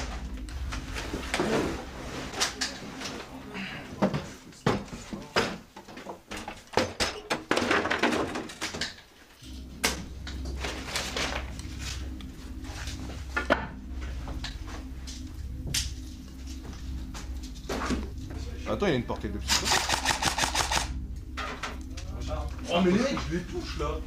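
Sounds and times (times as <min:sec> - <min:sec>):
low steady rumble: 0:00.0 - 0:03.5, 0:09.4 - 0:24.0.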